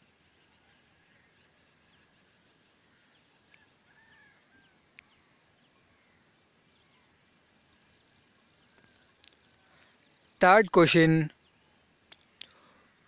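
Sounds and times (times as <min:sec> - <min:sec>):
faint chirps: 0:00.0 - 0:13.0
faint ticks: 0:02.8 - 0:03.7, 0:04.9 - 0:05.2, 0:08.0 - 0:10.3, 0:12.0 - 0:13.0.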